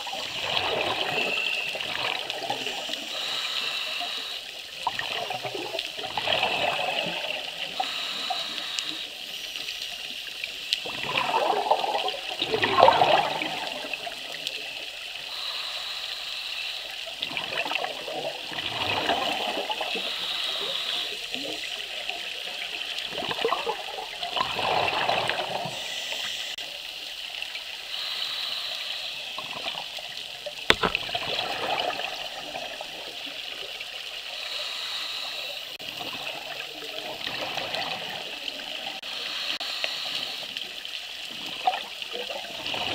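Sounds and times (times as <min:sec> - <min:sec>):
scuba regulator exhale bubbles: 0:00.1 - 0:09.0, 0:10.8 - 0:14.7, 0:17.2 - 0:21.5, 0:23.1 - 0:26.6, 0:30.7 - 0:33.0.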